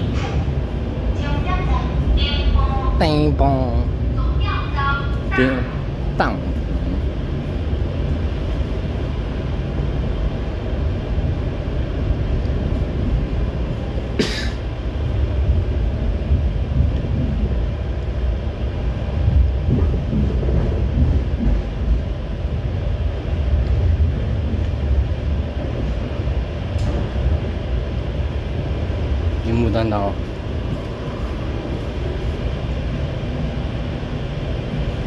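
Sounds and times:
train wheels rumbling on rails: 0.0s - 35.0s.

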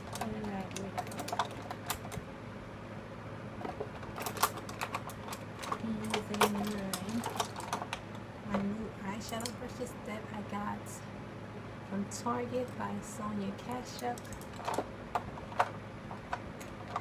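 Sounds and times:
brush handles clattering: 0.0s - 1.8s, 4.2s - 9.5s.

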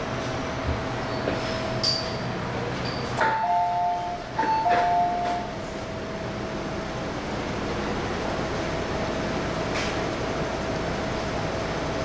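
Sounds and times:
train car steady hum: 0.0s - 12.0s
train door gear clunks: 3.0s - 5.5s
two-note ding-dong chime: 3.2s - 5.5s.

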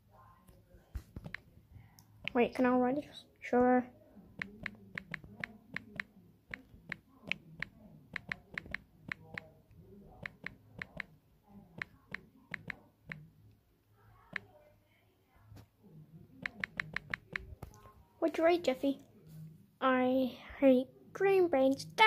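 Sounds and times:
phone keyboard tap clicks: 4.4s - 9.5s, 11.8s - 13.2s, 16.4s - 17.5s.

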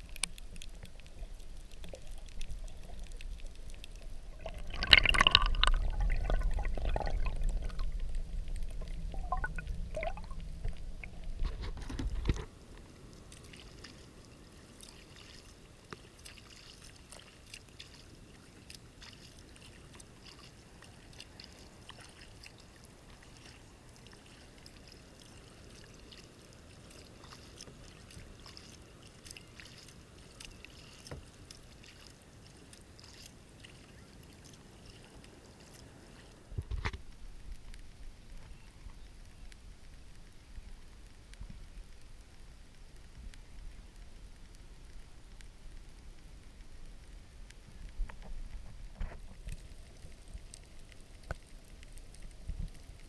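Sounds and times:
small ticks: 0.0s - 4.1s, 7.6s - 53.0s
water lapping against kayak hull: 0.0s - 42.4s
muffled underwater water rush: 0.0s - 53.0s.

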